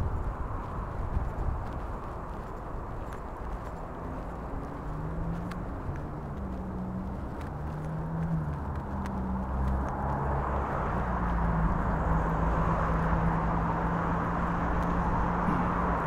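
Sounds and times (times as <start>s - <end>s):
cars passing: 0.0s - 16.0s.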